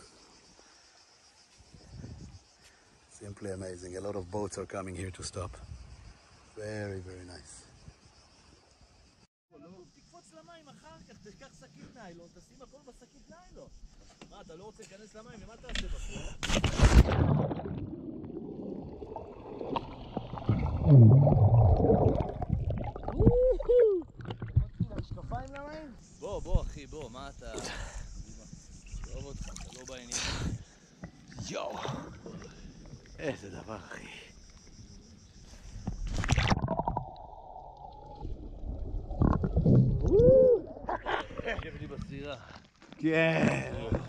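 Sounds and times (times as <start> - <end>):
water splash: 16.4 - 25.0, 29.1 - 30.0, 36.0 - 40.2
underwater rumble and gurgle: 16.8 - 25.6, 35.7 - 42.2.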